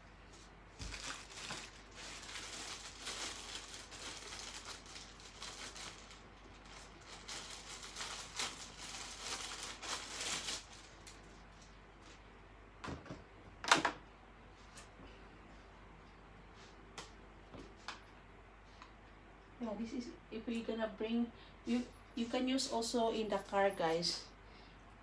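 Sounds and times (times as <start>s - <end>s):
plastic packaging crinkling: 0.7s - 12.2s.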